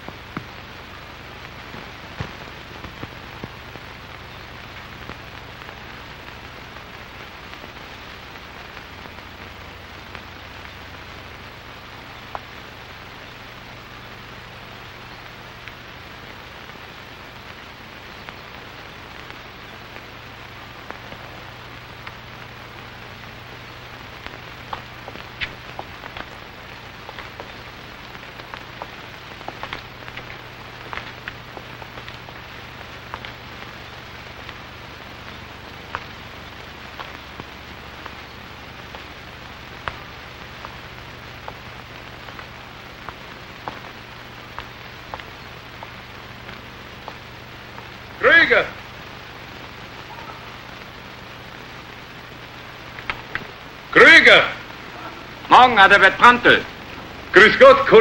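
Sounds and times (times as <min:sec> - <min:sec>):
crackles and pops: 0:00.0 - 0:58.0
film soundtrack hiss: 0:00.0 - 0:58.0.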